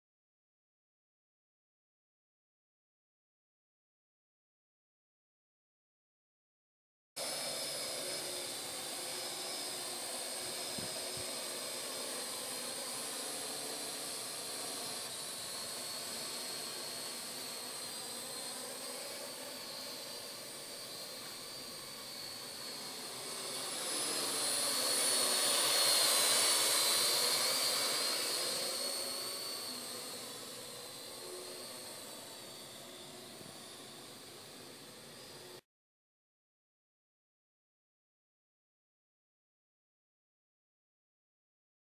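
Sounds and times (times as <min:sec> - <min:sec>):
jet aircraft flying over: 0:07.2 - 0:35.6.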